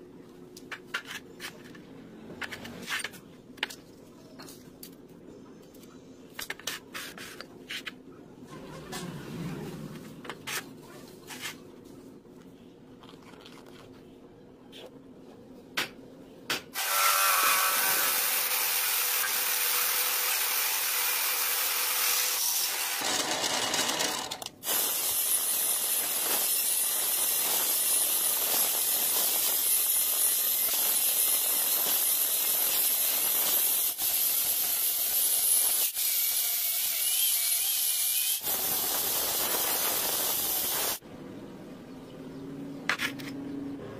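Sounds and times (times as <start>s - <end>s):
drill boring into steel: 16.8s - 36.9s.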